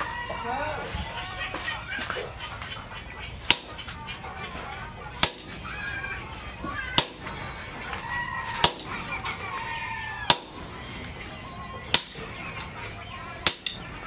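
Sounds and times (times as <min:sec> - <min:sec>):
hammer striking hot steel on anvil: 0:03.5 - 0:03.9, 0:05.2 - 0:05.8, 0:06.9 - 0:07.6, 0:08.6 - 0:09.1, 0:10.3 - 0:10.7, 0:11.9 - 0:12.4, 0:13.4 - 0:13.9.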